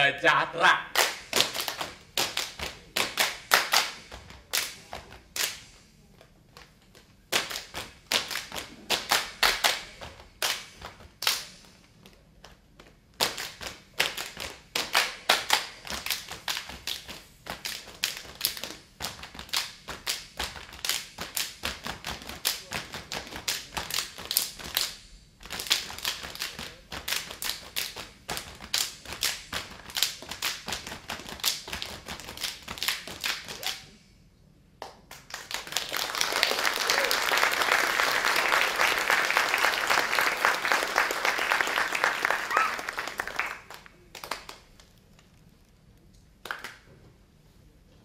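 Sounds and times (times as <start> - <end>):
hands clapping in unison: 0.9 - 5.8, 7.3 - 12.6, 13.2 - 33.8, 34.8 - 44.9, 46.4 - 46.9.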